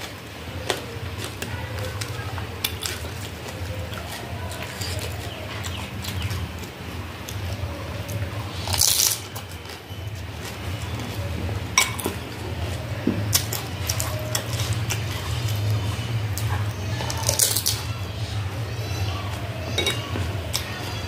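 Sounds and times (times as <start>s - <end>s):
noisy eating mouthful: 0.0s - 21.0s
clinks against glass bowl: 11.8s - 12.2s, 19.7s - 20.2s.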